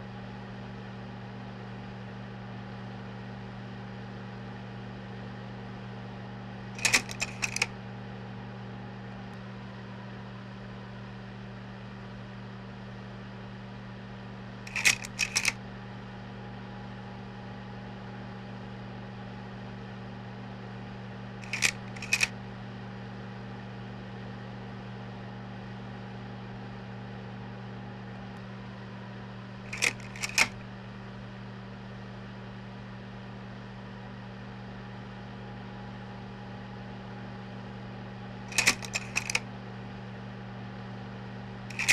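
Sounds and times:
slide projector motor hum: 6.8 - 7.7, 14.7 - 15.6, 21.4 - 22.3, 29.7 - 30.6, 38.5 - 39.4
slide-change mechanism clicking: 6.8 - 7.7, 14.7 - 15.6, 21.4 - 22.3, 29.7 - 30.6, 38.5 - 39.4.

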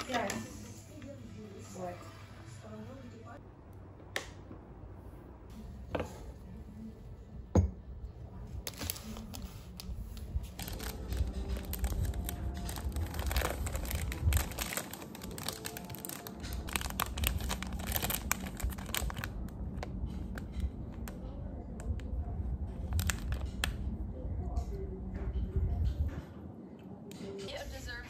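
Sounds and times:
plastic wrapper crinkling: 8.7 - 20.5, 22.8 - 23.8.

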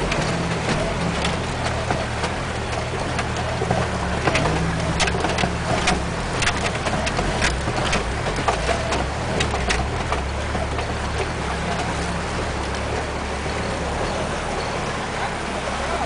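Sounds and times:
tyres knocking on rocks: 0.0 - 12.2
engine running: 0.0 - 16.0
water splashing: 0.0 - 16.0.

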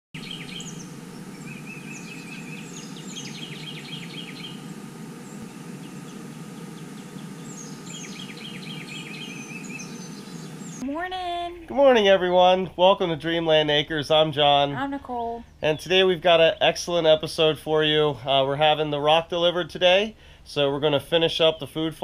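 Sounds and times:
songbirds singing: 0.2 - 10.8, 15.4 - 17.5
steady low background noise: 0.2 - 22.0.

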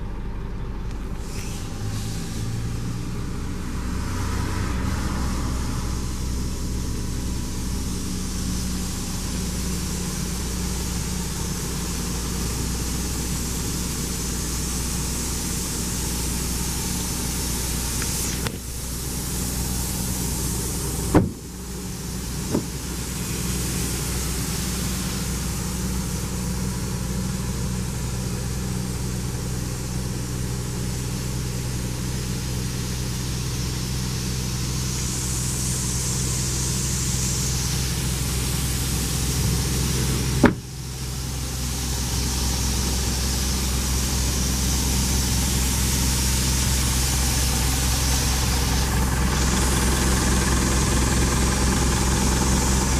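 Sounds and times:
diesel engine idling: 0.0 - 52.9
sharp knocks: 21.1 - 21.4, 40.4 - 40.7.

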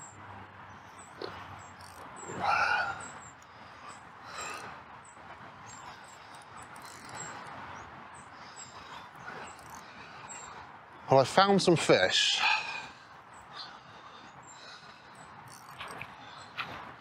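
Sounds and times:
animal call: 1.2 - 3.2.

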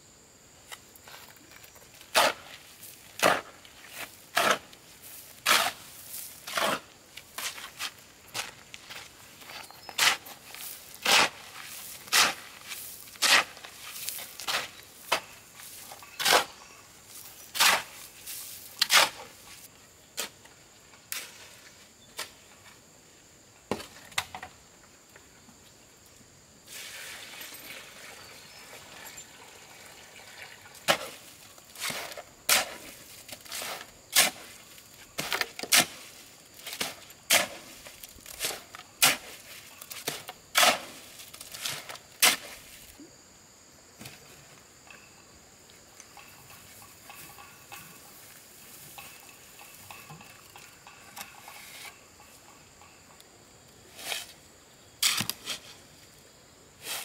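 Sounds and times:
hand tool striking wood: 55.0 - 55.6.

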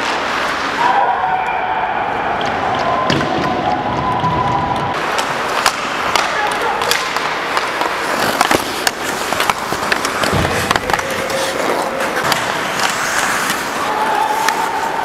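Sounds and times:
skates scraping on ice: 0.0 - 0.8, 3.8 - 15.0
hockey sticks and puck clacking: 0.0 - 1.0, 2.1 - 15.0.

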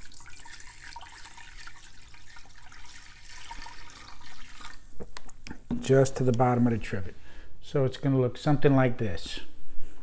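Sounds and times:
juice pouring into metal pot: 0.0 - 5.2.

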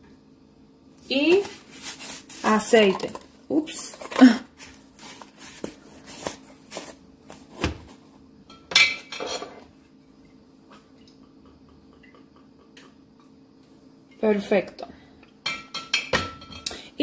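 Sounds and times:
faint steady hum: 0.0 - 17.0
containers knocking and clinking: 2.5 - 4.4.

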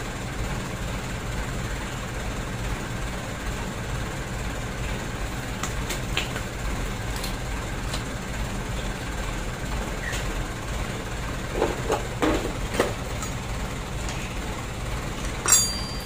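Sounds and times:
steady low hum: 0.0 - 16.0
metal hand tools clinking: 15.4 - 16.0.

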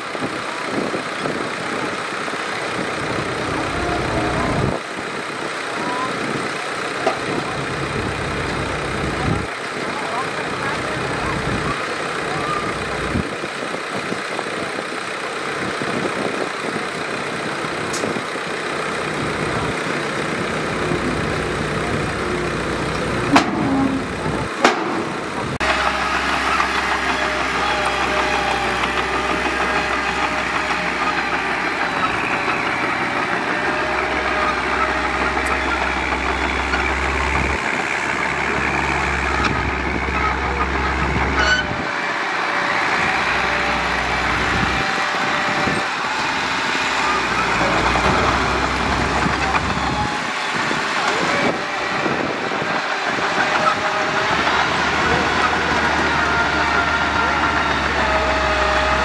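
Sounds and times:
diesel machinery running under load: 0.0 - 59.0
steady whine: 19.0 - 59.0.

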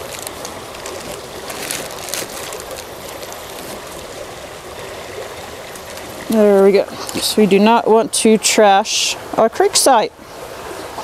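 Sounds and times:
plastic crackling: 0.0 - 4.1
creek water over rocks: 0.0 - 11.0.

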